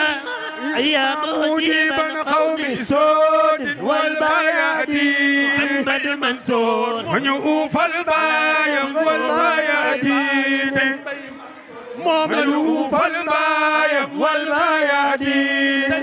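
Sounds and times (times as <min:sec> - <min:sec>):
men chanting devotional song: 0:00.0 - 0:16.0.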